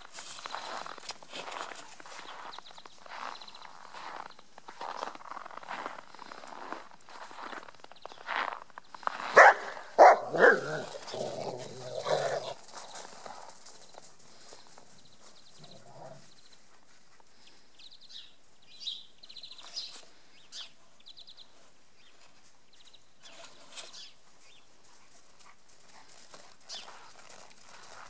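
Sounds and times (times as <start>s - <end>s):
short dog noises: 9.3s - 12.6s.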